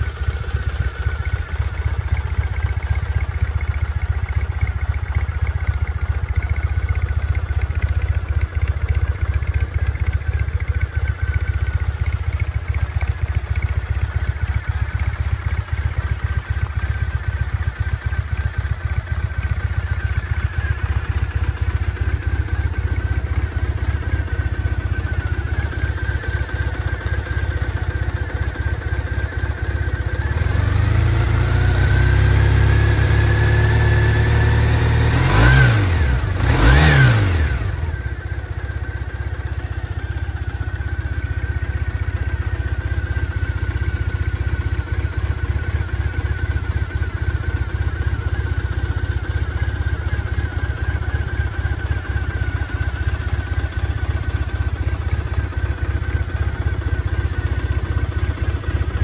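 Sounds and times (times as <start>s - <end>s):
motorcycle engine idling: 0.0s - 59.0s.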